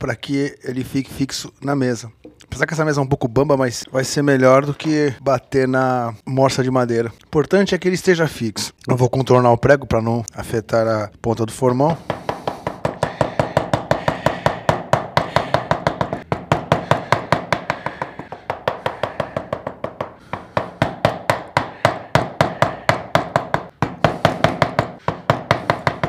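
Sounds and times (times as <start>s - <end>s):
mallet tapping chisel into wood: 12.0s - 26.0s.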